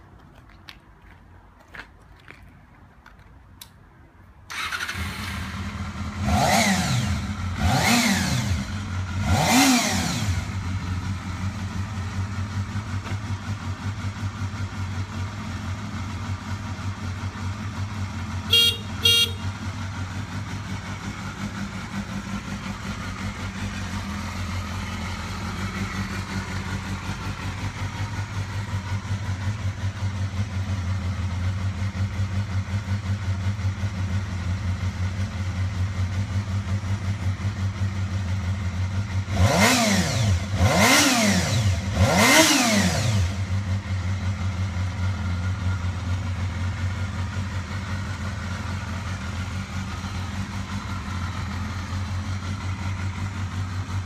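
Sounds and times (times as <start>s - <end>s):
motorcycle engine revving and idling: 4.5s - 54.0s
motorcycle horn beeps: 18.3s - 19.7s.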